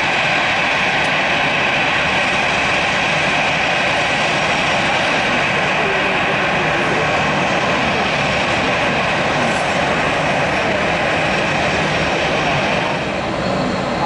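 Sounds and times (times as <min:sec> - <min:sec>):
jet engines rushing and whining: 0:00.0 - 0:14.0.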